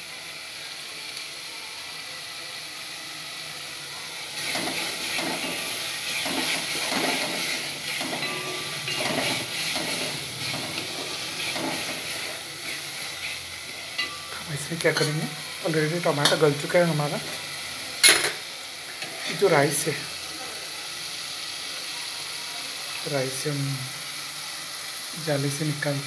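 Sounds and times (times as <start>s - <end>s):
tomato sauce sizzling in a pot: 0.0s - 26.0s
spatula stirring and scraping: 4.4s - 15.4s.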